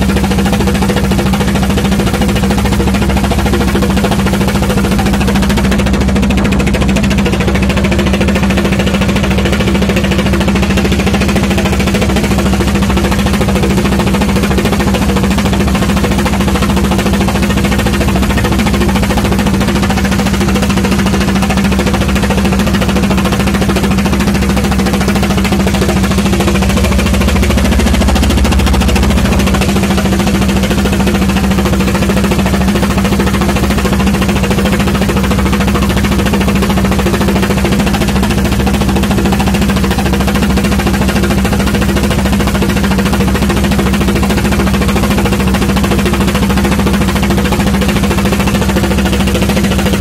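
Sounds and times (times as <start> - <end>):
boat engine droning: 0.0 - 50.0.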